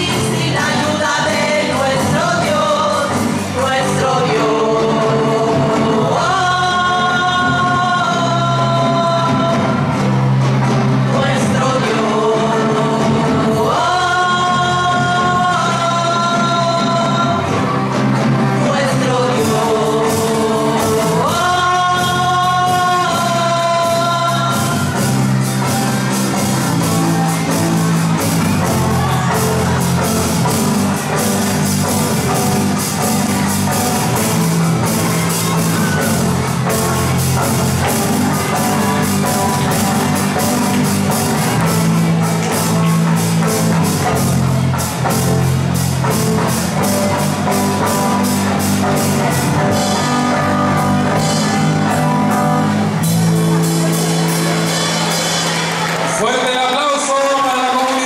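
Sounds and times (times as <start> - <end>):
group of people singing: 0.0 - 10.1, 10.9 - 17.8, 18.4 - 25.3
live rock band: 0.0 - 58.0.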